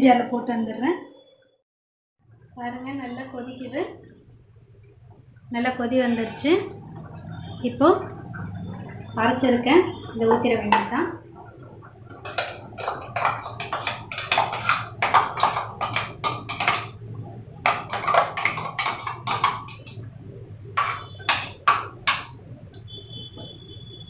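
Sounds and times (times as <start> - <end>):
steel jar knocking against a pan: 20.8 - 22.4.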